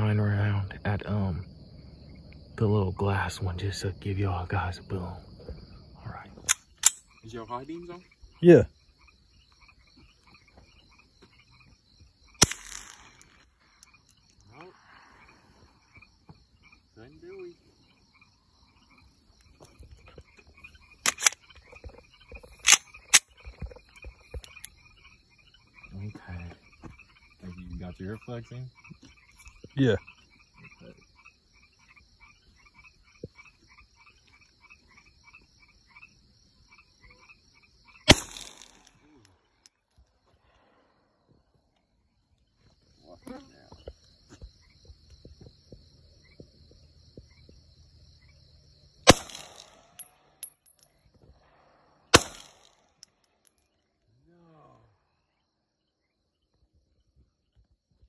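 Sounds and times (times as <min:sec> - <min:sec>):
frogs croaking: 0:00.0 - 0:57.2
crickets chirping: 0:00.0 - 0:58.0
gunshot with echo: 0:38.1 - 0:38.9, 0:49.1 - 0:50.1, 0:51.4 - 0:52.8.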